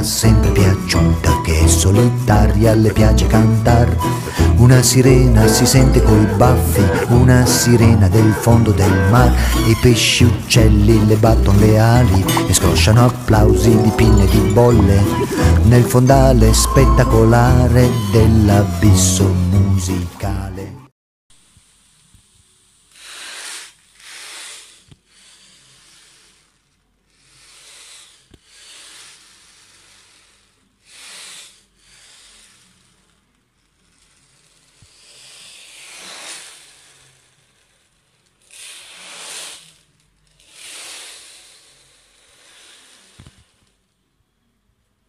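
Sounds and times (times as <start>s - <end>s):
rushing hiss: 22.9s - 26.3s, 40.6s - 43.2s.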